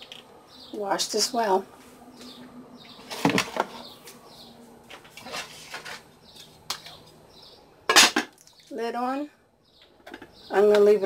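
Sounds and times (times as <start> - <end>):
kitchen utensils clattering: 5.2 - 6.1, 7.9 - 8.4.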